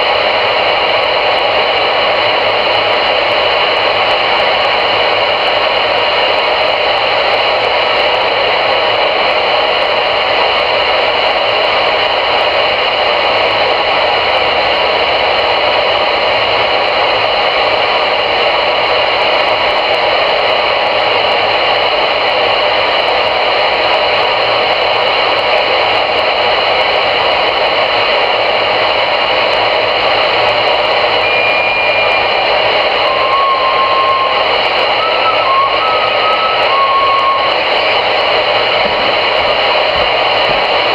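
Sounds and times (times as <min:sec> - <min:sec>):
radio static hiss: 0:00.0 - 0:40.9
faint short whistle tones: 0:31.2 - 0:37.9.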